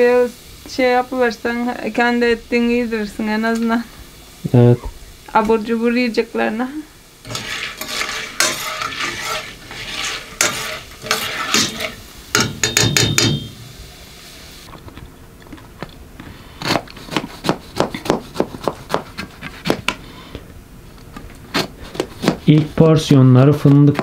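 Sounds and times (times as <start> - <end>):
spoon stirring in cooking pot: 7.2 - 13.4.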